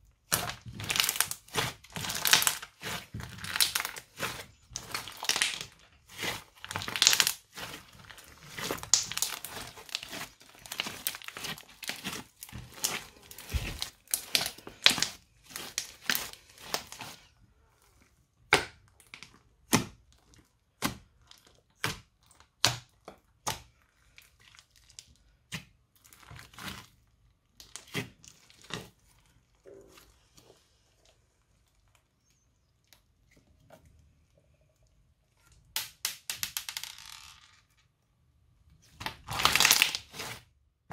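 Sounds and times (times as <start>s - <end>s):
crunchy slime crackling and popping: 0.0s - 17.3s, 38.9s - 40.4s.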